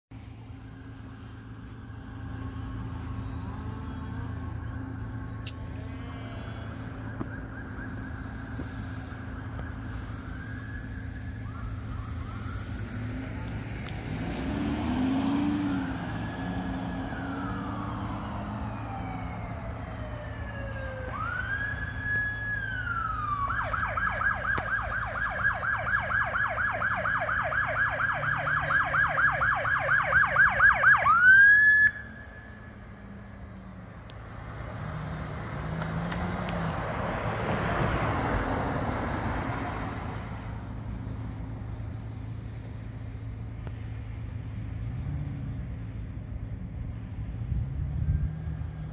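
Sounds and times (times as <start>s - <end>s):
low hum of street traffic: 0.1s - 48.9s
car passing: 0.2s - 48.9s
ambulance siren wailing and yelping: 0.5s - 32.9s.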